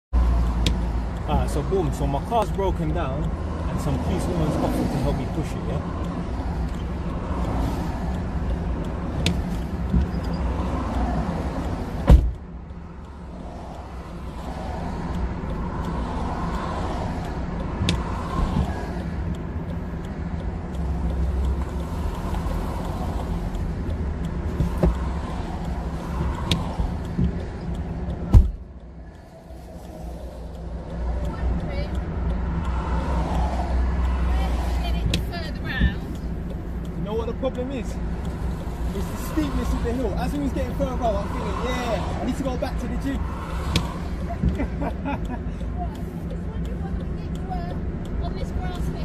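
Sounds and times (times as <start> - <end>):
low vehicle rumble: 0.1 - 49.0
car door slamming: 12.0 - 12.4, 28.3 - 28.6.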